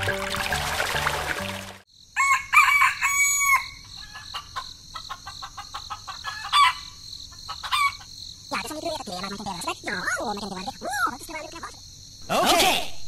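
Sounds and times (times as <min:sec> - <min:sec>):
rooster crowing: 0:02.2 - 0:04.4, 0:06.2 - 0:07.0
chickens clucking: 0:04.0 - 0:08.2.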